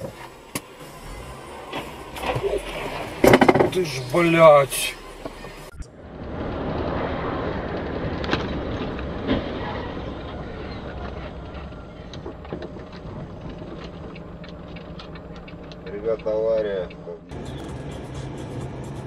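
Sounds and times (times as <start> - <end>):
car road noise on wet road: 0.0 - 19.0
gravel ticks: 5.2 - 19.0.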